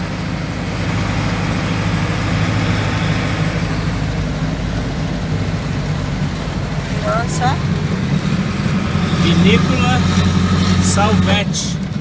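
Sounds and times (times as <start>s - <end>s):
road noise: 0.0s - 12.0s
van engine humming: 0.0s - 12.0s.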